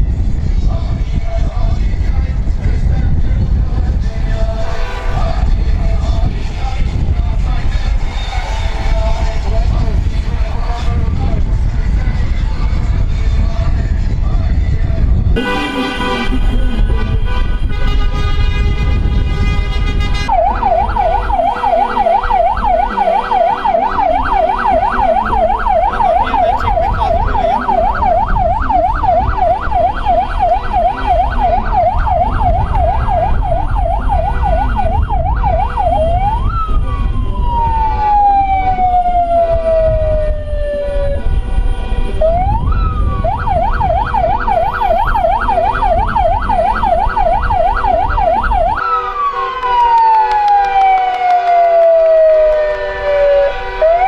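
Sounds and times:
engine and road rumble: 0.0 - 54.0
music: 15.4 - 19.0, 19.9 - 26.4
vehicle siren: 15.4 - 54.0.

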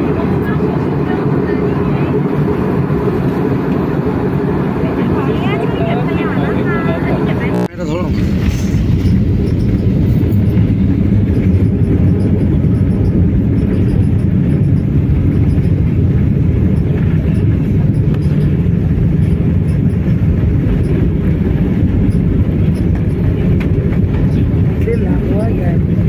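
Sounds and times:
airliner cabin engine rumble: 0.0 - 26.0.

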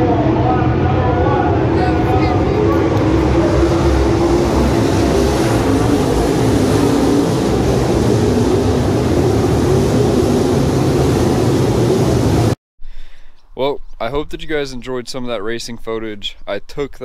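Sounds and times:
race car engines droning: 0.0 - 12.6.

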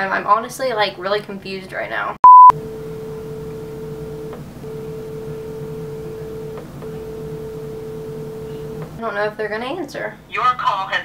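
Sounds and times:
phone ringing tone: 2.2 - 9.0.

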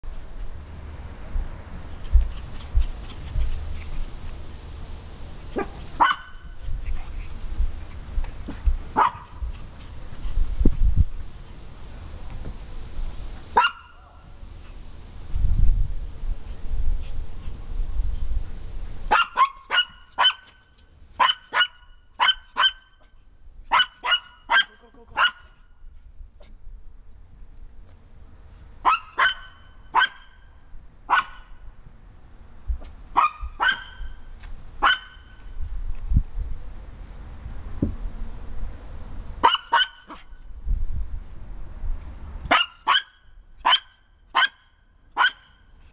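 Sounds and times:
small dog barking: 5.6 - 6.6, 8.9 - 9.4, 13.6 - 14.3, 19.1 - 20.6, 21.2 - 23.0, 23.7 - 25.6, 28.8 - 30.5, 31.1 - 31.6, 33.1 - 34.2, 34.8 - 35.4, 39.4 - 40.4, 42.5 - 45.6.

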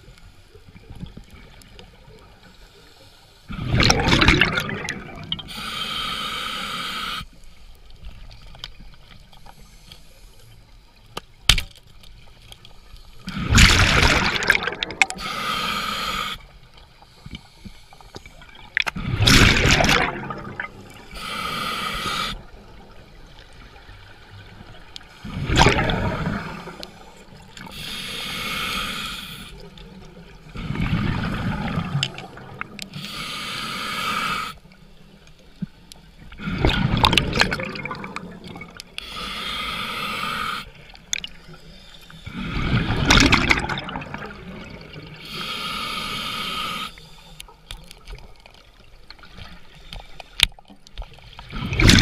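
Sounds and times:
regulator inhale hiss with whistle: 5.5 - 7.5, 15.2 - 18.2, 21.1 - 22.5, 26.8 - 29.6, 32.9 - 34.7, 39.0 - 40.8, 45.2 - 47.4.

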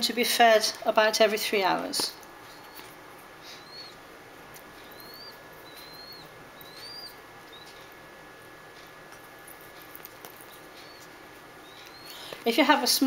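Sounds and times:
baby pigeon squeaking: 2.0 - 8.0, 9.2 - 12.7.

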